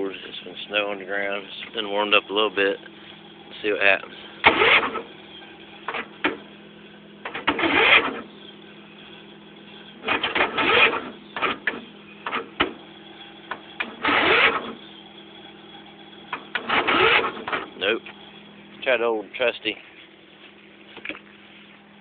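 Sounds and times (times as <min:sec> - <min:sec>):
mower starter cranking: 0:04.4 - 0:05.1, 0:05.8 - 0:06.5, 0:07.2 - 0:08.3, 0:10.0 - 0:12.8, 0:13.5 - 0:14.8, 0:16.3 - 0:18.0.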